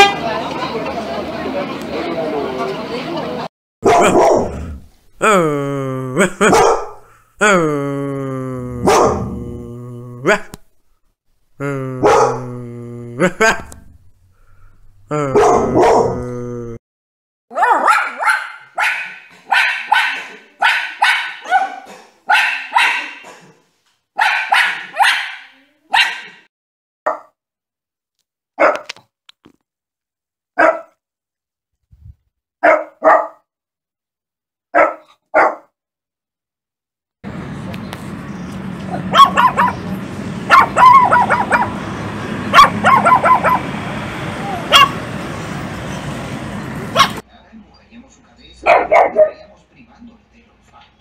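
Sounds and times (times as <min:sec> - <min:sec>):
puppy yapping: 0:03.8 - 0:04.6, 0:06.5 - 0:07.0, 0:17.5 - 0:23.4, 0:24.2 - 0:26.4, 0:30.6 - 0:30.9, 0:32.6 - 0:33.4, 0:34.8 - 0:35.7, 0:38.9 - 0:39.8, 0:40.5 - 0:41.8, 0:42.5 - 0:43.7, 0:44.4 - 0:45.0, 0:46.9 - 0:47.2, 0:48.7 - 0:49.4
dog barking: 0:03.8 - 0:04.8, 0:06.4 - 0:07.0, 0:08.8 - 0:09.4, 0:12.0 - 0:12.5, 0:15.3 - 0:16.2, 0:17.5 - 0:23.6, 0:24.2 - 0:26.5, 0:27.1 - 0:27.3, 0:28.6 - 0:28.9, 0:30.6 - 0:31.0, 0:32.6 - 0:33.4, 0:34.7 - 0:35.7, 0:38.9 - 0:39.8, 0:40.5 - 0:41.8, 0:42.5 - 0:43.7, 0:44.6 - 0:45.0, 0:46.9 - 0:47.2, 0:48.6 - 0:49.5.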